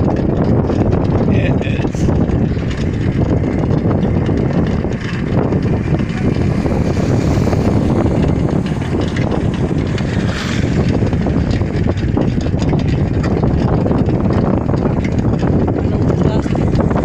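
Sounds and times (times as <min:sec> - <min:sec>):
vehicle engine and road noise: 0:00.0 - 0:17.0
wind buffeting microphone: 0:00.0 - 0:17.0.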